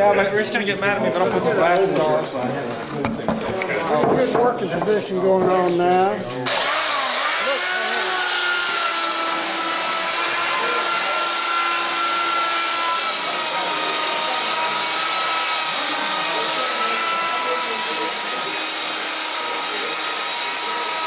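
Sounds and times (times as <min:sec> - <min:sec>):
power tool whining: 0:06.3 - 0:21.0.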